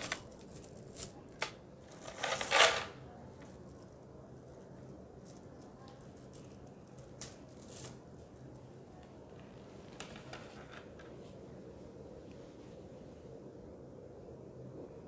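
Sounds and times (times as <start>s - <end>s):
plastic beads clicking and rattling: 0.0s - 8.6s.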